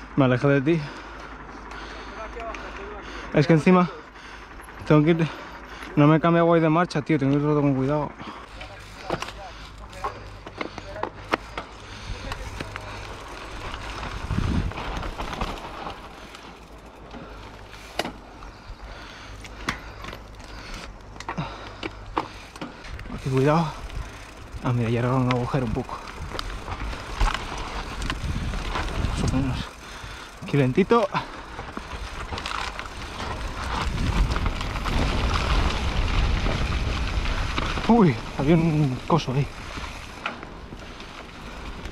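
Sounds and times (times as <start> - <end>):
bike tyres on dirt trail: 0.0 - 41.9
bike knocking: 8.2 - 41.9
low rumble: 11.2 - 41.9.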